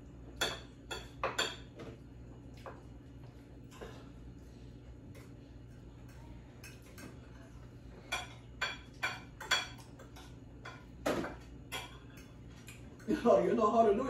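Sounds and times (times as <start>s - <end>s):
faint steady hum: 0.0s - 14.0s
cutlery clinking on plates: 0.4s - 2.0s, 6.0s - 13.2s.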